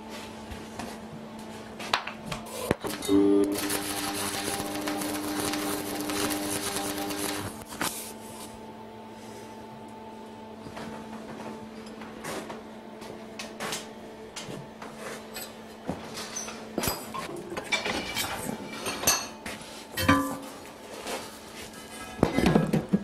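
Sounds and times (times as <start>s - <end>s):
steady hum: 0.0s - 15.3s.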